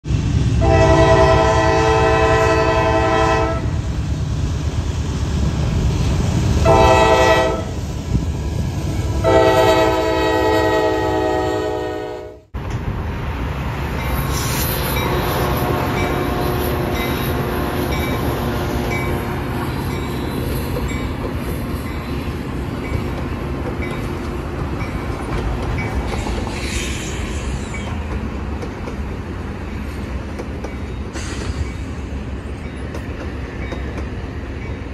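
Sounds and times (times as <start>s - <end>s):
diesel locomotive engine rumble: 0.0s - 34.9s
train rumbling: 0.0s - 34.9s
locomotive air horn blasts: 0.6s - 3.8s, 6.6s - 7.8s, 9.2s - 12.5s, 15.0s - 16.7s.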